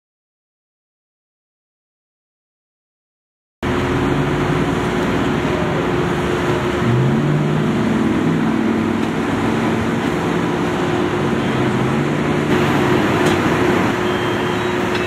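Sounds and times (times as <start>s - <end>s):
heavy vehicle engines idling: 3.6s - 15.0s
roadway traffic noise: 3.6s - 15.0s.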